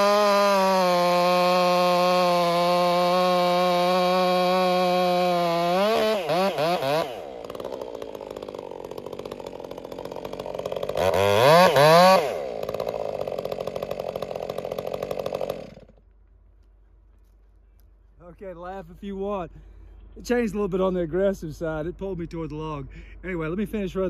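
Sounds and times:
chainsaw revving and idling: 0:00.0 - 0:16.1.

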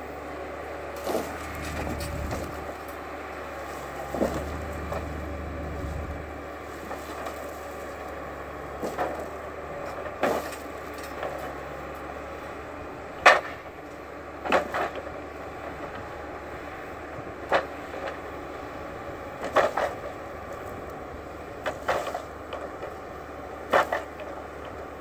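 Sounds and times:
forestry machine humming: 0:00.0 - 0:25.0
logs knocking and cracking: 0:01.0 - 0:11.8, 0:13.2 - 0:13.8, 0:14.4 - 0:16.1, 0:17.4 - 0:18.5, 0:19.3 - 0:24.9.

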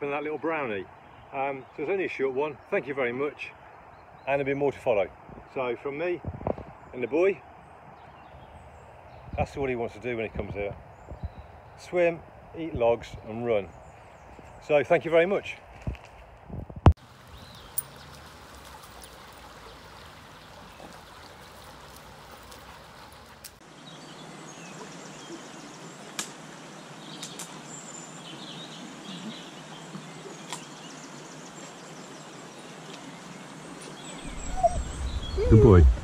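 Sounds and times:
stream running over stones: 0:16.9 - 0:36.0
small birds calling: 0:17.1 - 0:36.0.

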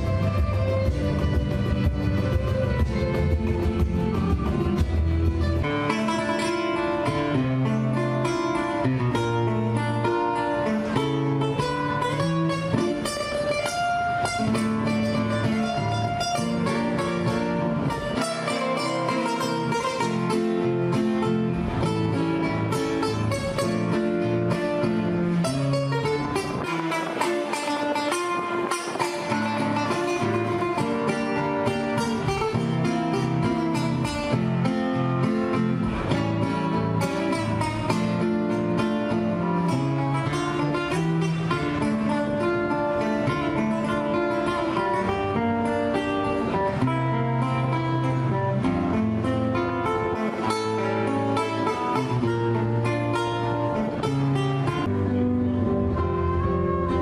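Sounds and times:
acoustic guitar duet: 0:00.0 - 0:57.0.

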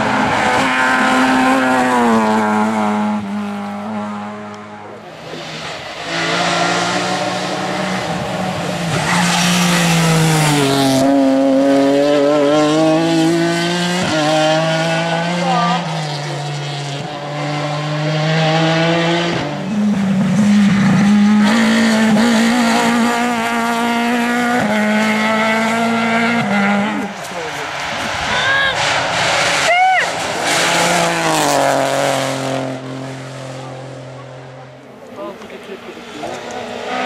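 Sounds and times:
rally car engine accelerating: 0:00.0 - 0:37.0
rally car revving: 0:00.0 - 0:37.0.

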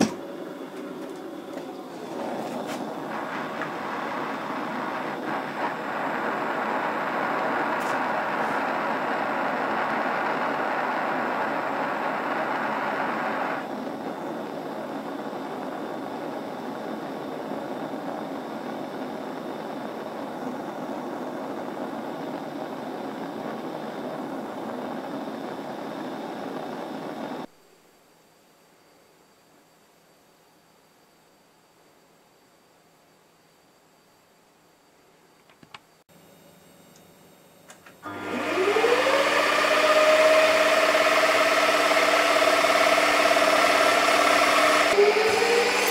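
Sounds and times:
gas torch flame hissing: 0:00.0 - 0:27.5, 0:37.8 - 0:45.9.

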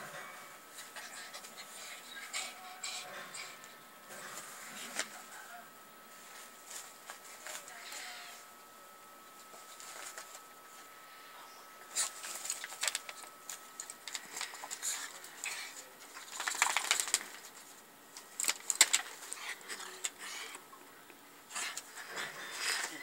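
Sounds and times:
rustling of bedding: 0:04.1 - 0:08.5, 0:09.3 - 0:15.4
clicks and rattles of cables: 0:12.2 - 0:14.8, 0:16.0 - 0:17.5, 0:18.1 - 0:20.2.

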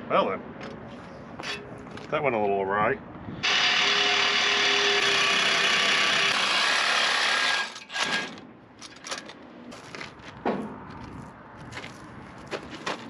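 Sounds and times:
power tool cutting steel: 0:03.4 - 0:08.3.

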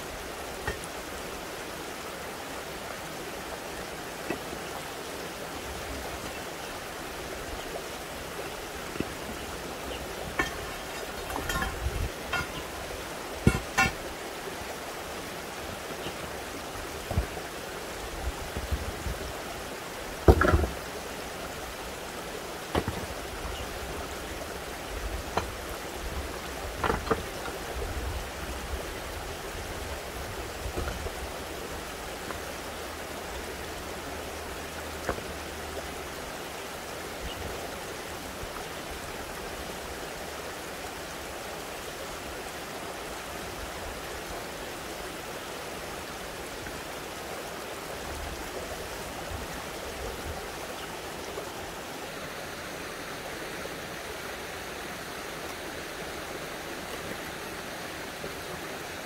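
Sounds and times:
rushing spring water: 0:00.0 - 0:59.0
stones clunking together: 0:10.4 - 0:12.8, 0:13.4 - 0:14.0, 0:20.2 - 0:20.8, 0:22.7 - 0:23.1.

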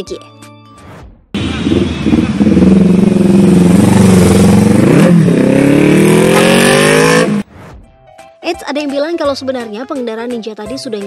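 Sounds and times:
motorcycle engine revving: 0:01.4 - 0:07.5.

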